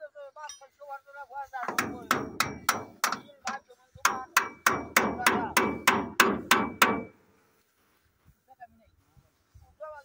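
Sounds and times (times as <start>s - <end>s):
hammer blows on metal: 1.6s - 7.2s.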